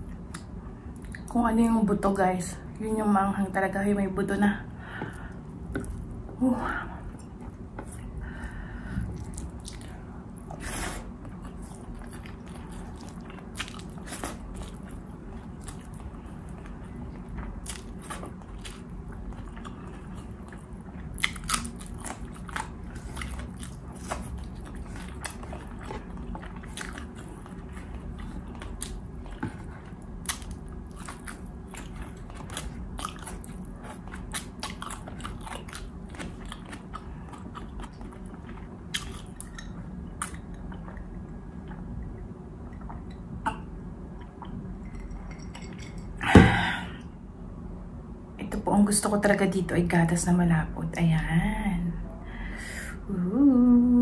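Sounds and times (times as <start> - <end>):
steady low hum: 0.0 - 54.0
person chewing crunchy food: 7.3 - 45.0.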